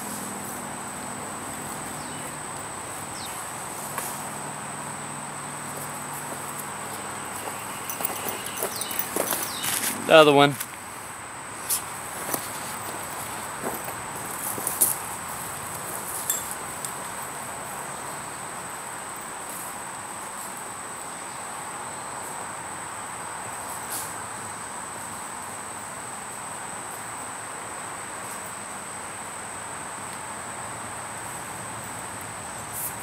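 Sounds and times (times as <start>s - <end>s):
constant hiss: 0.0s - 33.0s
insect chorus drone: 0.0s - 33.0s
footsteps on dry leaves: 5.6s - 16.6s.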